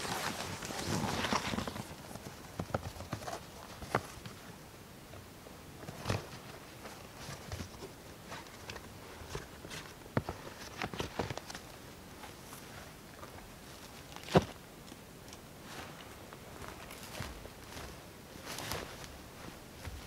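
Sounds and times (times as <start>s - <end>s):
footsteps on dry grass: 15.6s - 20.0s.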